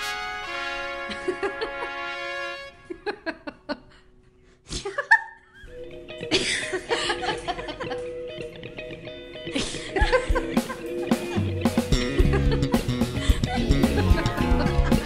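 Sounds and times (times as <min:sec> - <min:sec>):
background music: 0:00.0 - 0:03.5, 0:05.7 - 0:15.0
burst of laughter: 0:09.5 - 0:15.0.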